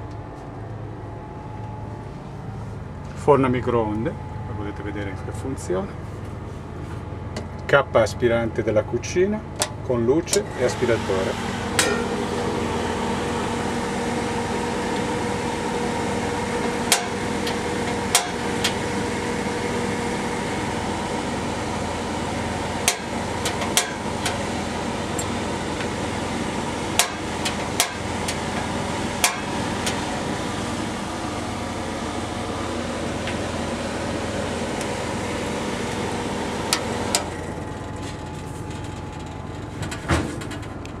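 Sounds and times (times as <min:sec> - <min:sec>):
range hood fan humming: 0:00.0 - 0:41.0
gas burner igniter clicks: 0:22.8 - 0:24.4, 0:27.0 - 0:28.4.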